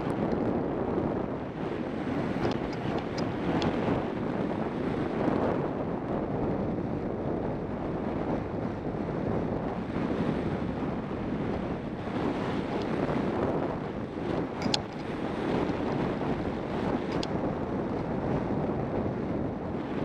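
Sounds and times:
atv engine and tyre noise: 0:00.0 - 0:20.0
wind buffeting microphone: 0:00.0 - 0:20.0
gravel ticks: 0:02.4 - 0:03.8, 0:14.6 - 0:16.0, 0:17.1 - 0:18.1.

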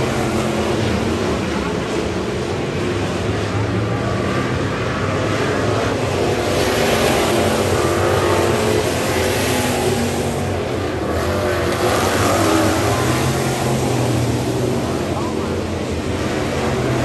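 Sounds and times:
race car engines droning: 0:00.0 - 0:17.0.

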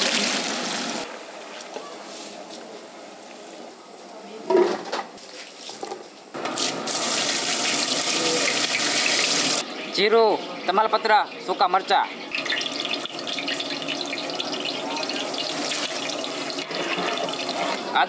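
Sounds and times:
hot oil sizzling in a pot: 0:00.0 - 0:01.1, 0:05.6 - 0:09.6, 0:11.0 - 0:18.0.

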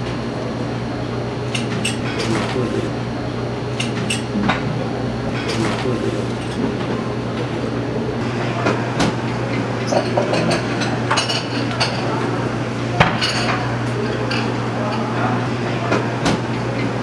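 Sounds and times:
steady low hum: 0:00.0 - 0:13.0
indistinct voices: 0:04.1 - 0:09.0
dishes clinking: 0:09.8 - 0:12.2.

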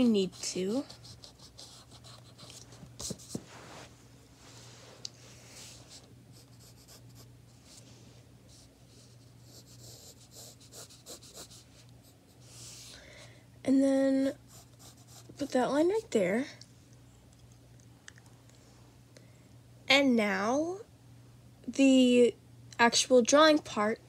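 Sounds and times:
pencil scratching on paper: 0:00.0 - 0:03.4, 0:06.4 - 0:07.3, 0:08.5 - 0:11.6, 0:14.5 - 0:15.5
faint steady hum: 0:00.0 - 0:24.0.

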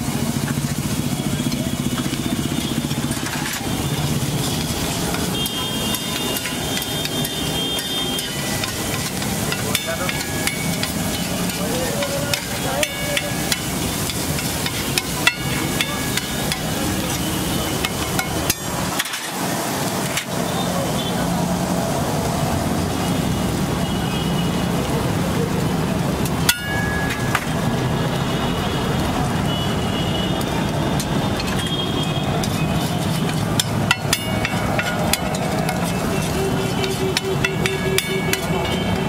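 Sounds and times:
egg mixture sizzling on griddle: 0:00.0 - 0:39.0
metal spatula scraping and tapping: 0:01.5 - 0:19.4, 0:31.0 - 0:39.0.

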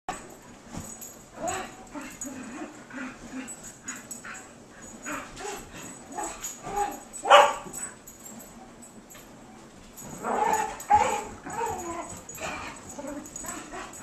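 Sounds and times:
loud dog bark: 0:07.3 - 0:07.6.

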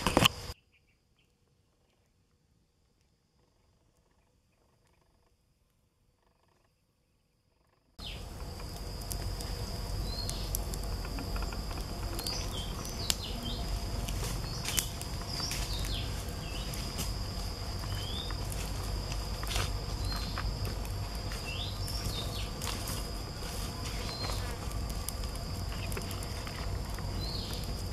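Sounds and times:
insect drone: 0:00.0 - 0:27.9
bird chirps: 0:00.5 - 0:02.0, 0:08.0 - 0:08.3, 0:09.9 - 0:10.7, 0:11.3 - 0:16.9, 0:17.8 - 0:18.4, 0:21.4 - 0:22.7, 0:27.1 - 0:27.6
campfire crackling and popping: 0:08.0 - 0:27.9.

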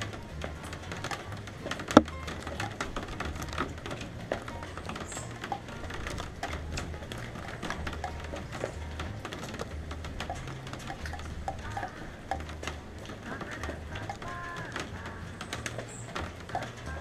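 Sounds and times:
rain dripping on hard surface: 0:00.0 - 0:17.0.

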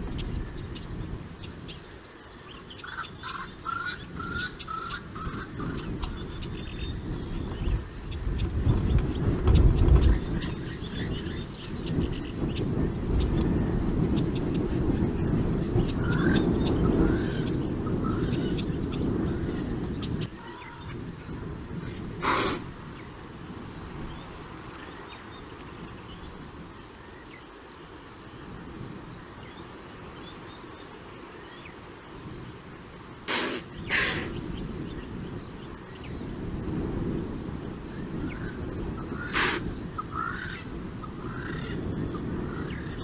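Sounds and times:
small birds calling: 0:00.0 - 0:43.0
impala alarm snorts: 0:22.2 - 0:22.7, 0:33.2 - 0:34.4, 0:39.3 - 0:39.6.

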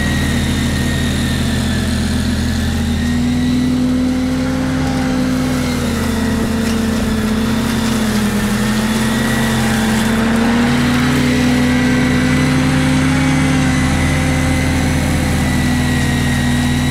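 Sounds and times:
ride-on mower engine running: 0:00.0 - 0:16.9.

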